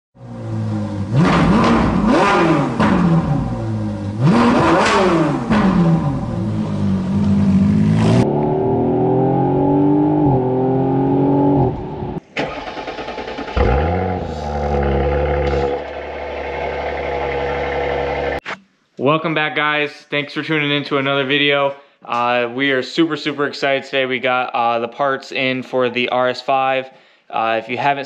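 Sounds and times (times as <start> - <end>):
car engine revving: 0.2 - 18.4
quieter engine sound: 14.0 - 18.4.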